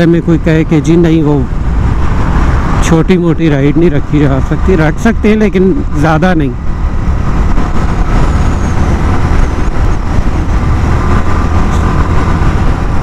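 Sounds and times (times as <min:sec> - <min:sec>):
wind rumble on microphone: 0:00.0 - 0:13.0
motorcycle engine running: 0:04.6 - 0:13.0.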